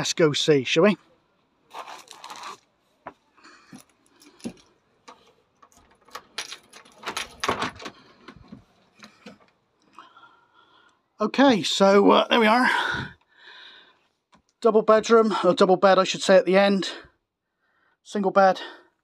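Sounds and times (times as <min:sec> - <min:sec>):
door lock and handle clicking: 0:05.1 - 0:09.1
keys jangling: 0:05.6 - 0:07.9.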